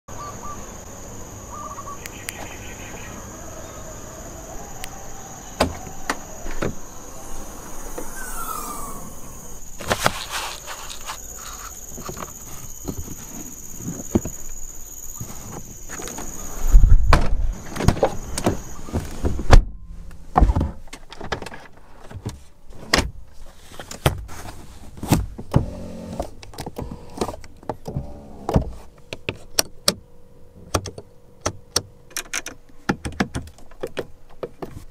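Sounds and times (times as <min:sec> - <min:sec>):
steady high whine: 0:00.4 - 0:19.1.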